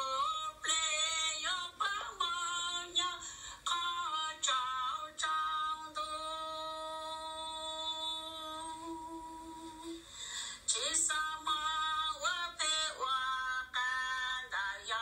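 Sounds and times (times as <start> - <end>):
person singing unaccompanied: 0.0 - 10.1, 10.7 - 15.0.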